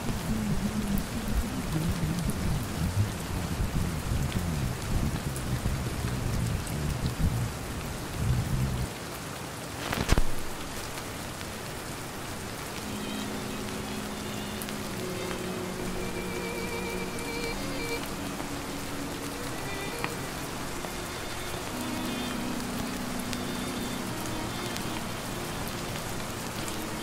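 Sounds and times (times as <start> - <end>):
low uneven rumble: 0.0 - 8.9
rain hissing: 0.0 - 27.0
faint music with held notes: 11.9 - 27.0.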